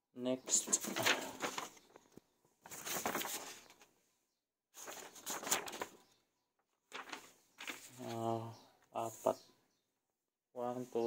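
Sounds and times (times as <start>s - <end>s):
paper rustling: 0.5s - 4.0s, 4.8s - 6.2s, 6.8s - 8.4s.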